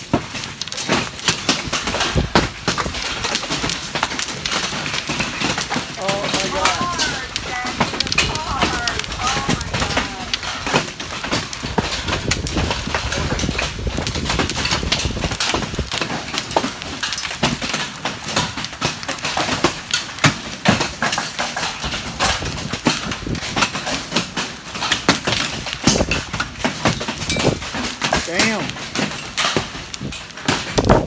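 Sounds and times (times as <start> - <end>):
hail hitting concrete and metal: 0.0 - 31.0
rush of falling hail: 0.0 - 31.0.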